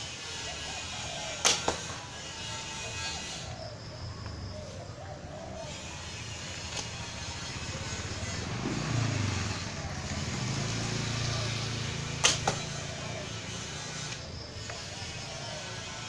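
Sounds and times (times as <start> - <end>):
bow string snap: 12.2 - 12.7.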